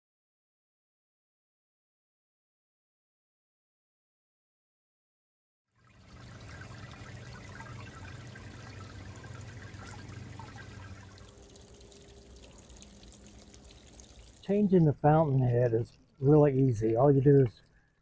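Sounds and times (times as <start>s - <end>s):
fountain water splashing on stones: 6.0s - 17.4s.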